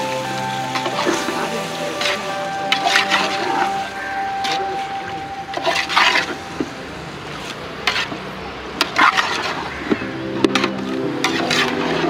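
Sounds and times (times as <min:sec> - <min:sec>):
background music: 0:00.0 - 0:07.8, 0:09.0 - 0:12.0
ladle scraping a metal pot: 0:07.9 - 0:08.2, 0:08.8 - 0:09.7, 0:10.5 - 0:12.0
metal ladle stirring in a pot: 0:08.8 - 0:09.7, 0:10.5 - 0:12.0.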